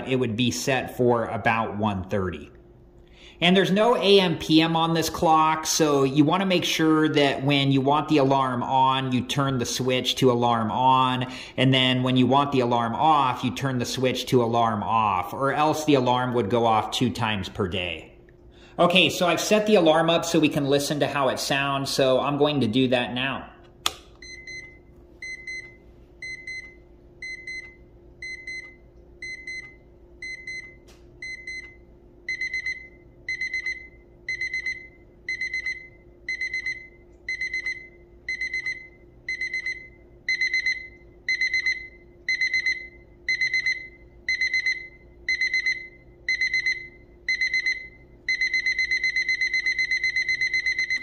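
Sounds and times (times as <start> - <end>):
alarm clock beeping: 24.2 - 51.0.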